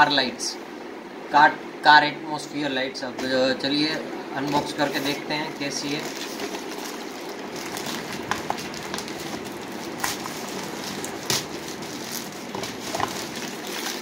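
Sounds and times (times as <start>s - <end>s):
plastic mailer bag crinkling: 4.5s - 14.0s.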